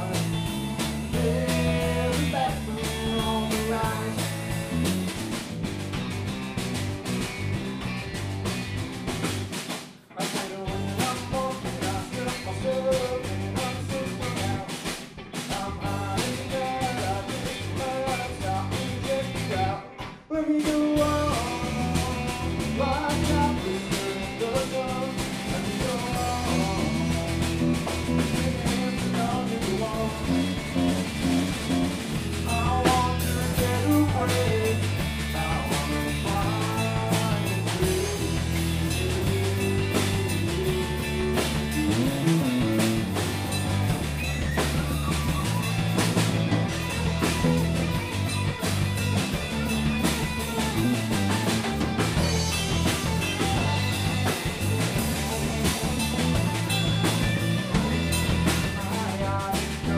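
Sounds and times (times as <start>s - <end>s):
man singing lead vocal: 0.0s - 4.9s, 10.1s - 43.1s, 53.4s - 59.9s
bass guitar: 0.0s - 59.9s
drum kit: 0.0s - 59.9s
electric guitar: 0.0s - 59.9s.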